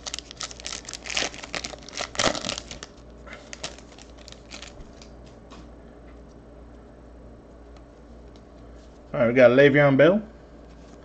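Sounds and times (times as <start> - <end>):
foil wrapper crinkling and tearing: 0.0 - 5.1.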